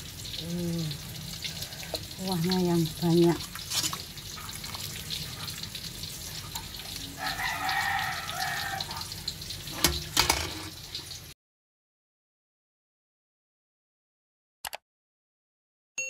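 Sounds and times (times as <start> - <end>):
rooster crowing: 7.0 - 9.1.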